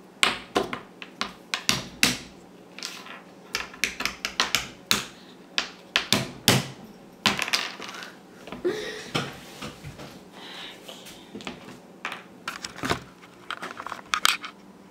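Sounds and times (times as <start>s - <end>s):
acorns knocking on wooden table: 0.2s - 8.2s.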